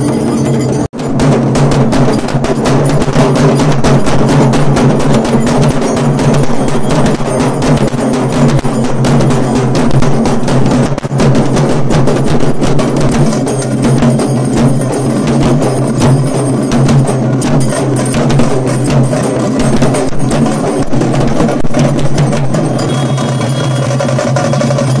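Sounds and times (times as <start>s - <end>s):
barrel drum: 0.0s - 25.0s
frame drums beaten with sticks: 0.0s - 25.0s.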